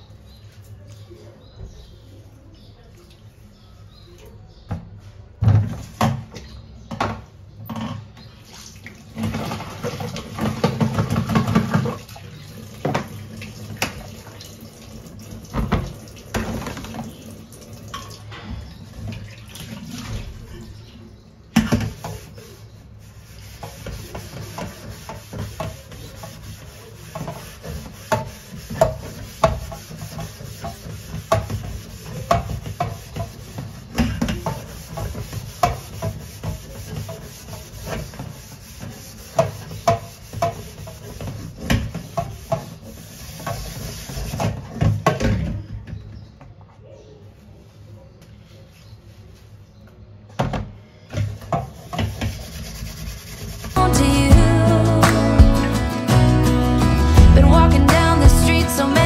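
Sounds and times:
tap water running and splashing: 8.5 - 20.5, 23.4 - 45.2.

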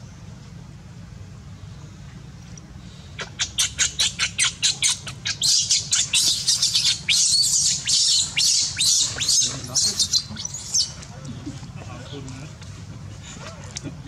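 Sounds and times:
baby monkey screaming: 3.2 - 11.0.

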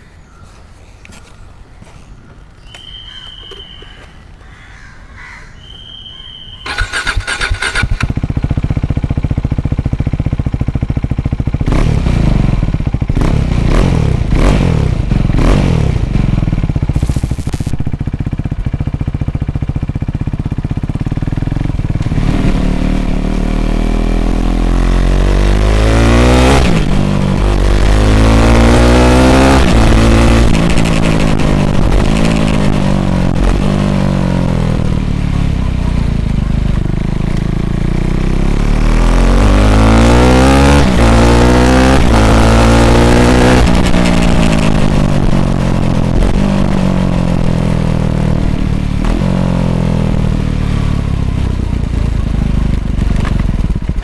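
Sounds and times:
motorcycle accelerating through gears: 6.6 - 54.0
motorcycle engine revving: 6.6 - 54.0.

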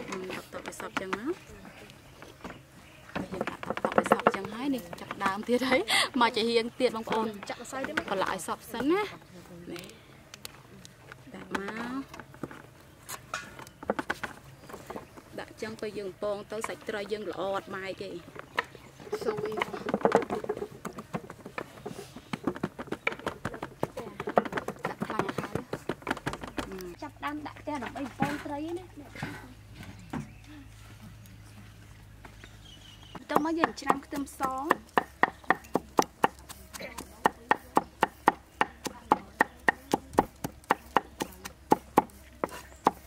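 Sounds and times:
cleaver chopping on wooden block: 33.2 - 43.0.

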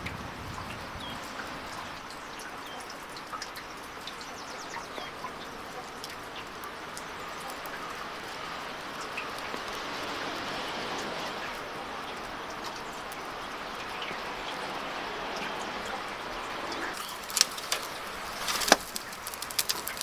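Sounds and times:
steady outdoor hiss: 0.0 - 20.0.

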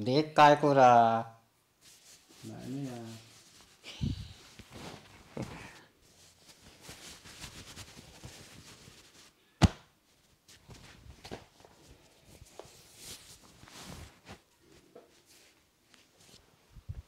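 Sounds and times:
hands rubbing shirt: 1.8 - 9.3, 10.1 - 16.5
loud snap: 9.6 - 9.9.

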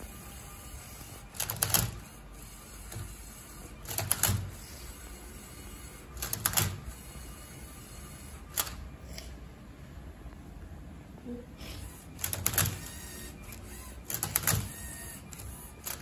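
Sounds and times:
robot motors and plastic clacking: 0.9 - 2.2, 2.8 - 5.1, 11.6 - 16.0.

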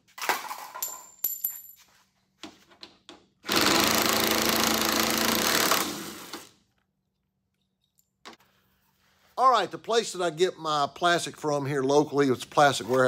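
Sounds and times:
cordless impact driver: 3.4 - 6.6.

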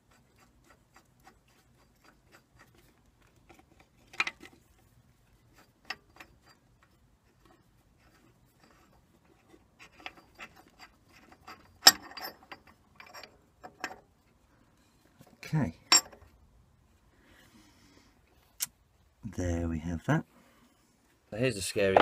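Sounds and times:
metallic clicks and rattles: 0.0 - 14.2.

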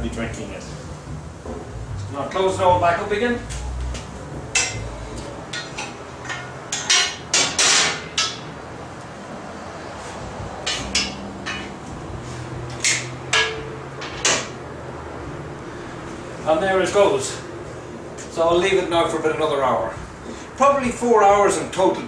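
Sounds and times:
rattling metal clatter: 5.5 - 8.5
metal oven doors clanking: 5.5 - 8.6.

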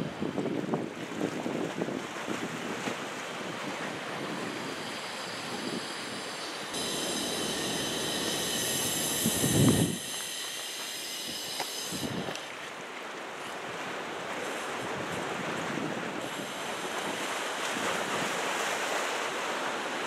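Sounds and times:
wind buffeting microphone: 0.0 - 12.5
steady high hiss: 4.0 - 12.9, 16.2 - 18.6.

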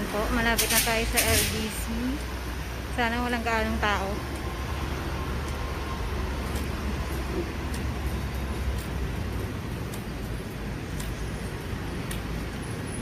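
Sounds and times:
street traffic rumble: 0.0 - 13.0
light ticks: 4.2 - 12.7.

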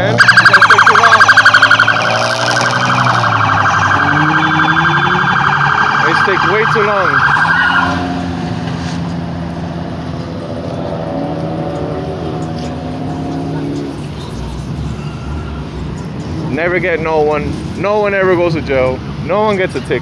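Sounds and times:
police siren warbling: 0.0 - 8.3
car engines running: 0.0 - 20.0.

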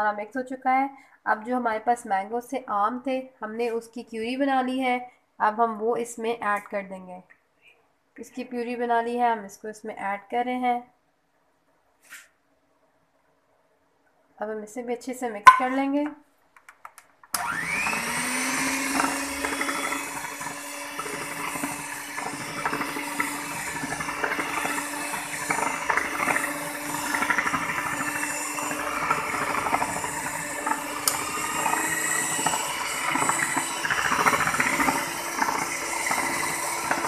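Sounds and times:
hand mixer motor whine: 17.4 - 37.0.

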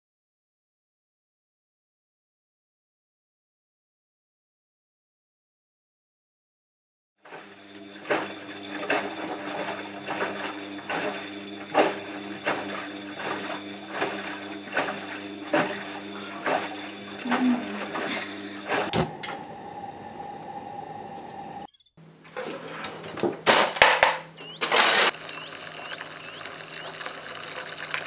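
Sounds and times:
washing machine drum humming: 7.3 - 21.7.

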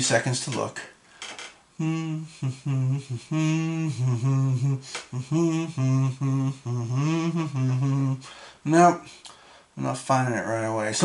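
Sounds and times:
man humming: 1.8 - 9.2.

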